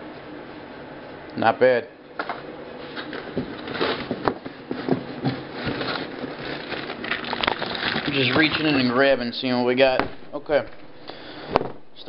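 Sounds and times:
hands rummaging in cardboard box: 0:03.0 - 0:08.9.

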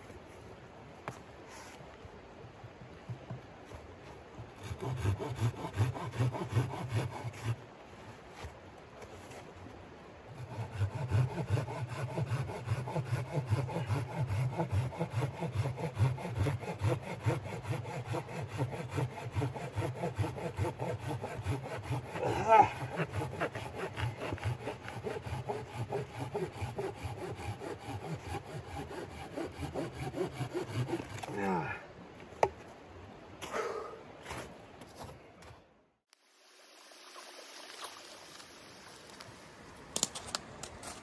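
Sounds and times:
saw cutting through log: 0:04.6 - 0:07.6, 0:10.4 - 0:31.6.

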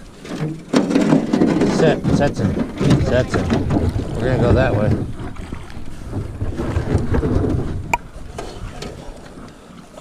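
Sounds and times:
canoe paddling: 0:00.0 - 0:10.0
wind rumbling on microphone: 0:01.5 - 0:09.5.

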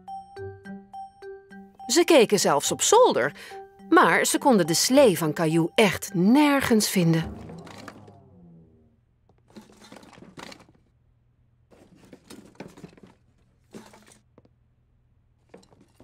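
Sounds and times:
objects clunking and rustling: 0:07.3 - 0:08.2, 0:09.3 - 0:11.0, 0:11.7 - 0:14.6, 0:15.4 - 0:16.0.

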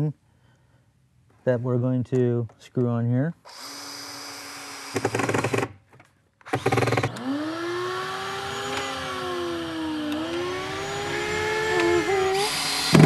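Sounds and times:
cordless drill driving screws: 0:03.5 - 0:05.7, 0:06.4 - 0:13.0
humming tone: 0:10.2 - 0:13.0.

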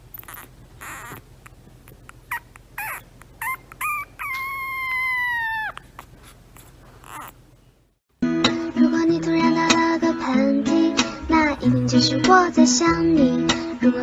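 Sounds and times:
puppy whining: 0:00.0 - 0:07.6.

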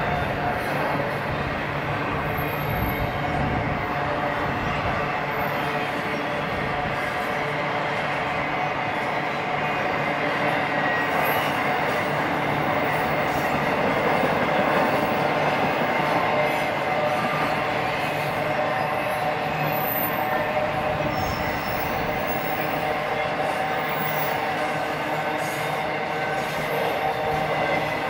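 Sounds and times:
train wheels on rail: 0:00.0 - 0:28.0
high squealing of wheels: 0:02.2 - 0:03.5, 0:08.3 - 0:28.0.

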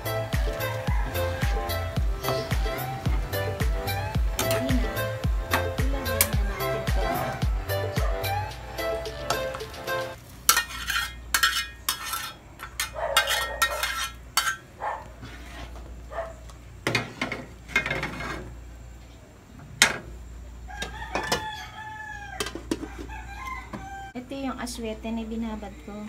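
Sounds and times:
metal spatula scraping frying pan: 0:10.4 - 0:15.9, 0:16.9 - 0:18.6.

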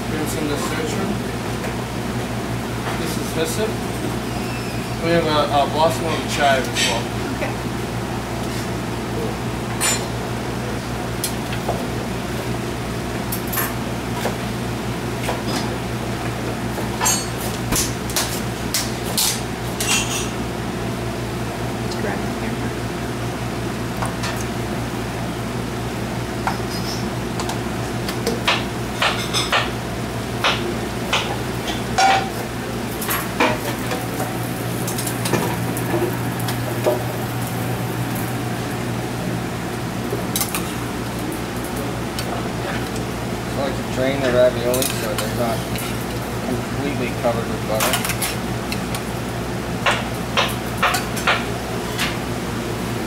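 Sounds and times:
kitchen ventilation hum: 0:00.0 - 0:53.0
utensils and dishes clinking: 0:09.8 - 0:10.1, 0:17.0 - 0:20.4, 0:30.4 - 0:32.4, 0:44.2 - 0:46.1, 0:47.8 - 0:48.4
frying sizzle: 0:26.2 - 0:53.0.

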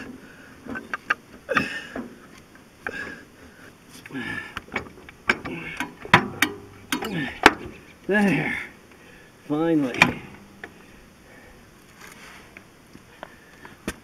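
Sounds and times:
metal clicks and knocks: 0:04.6 - 0:07.8, 0:09.9 - 0:10.8.

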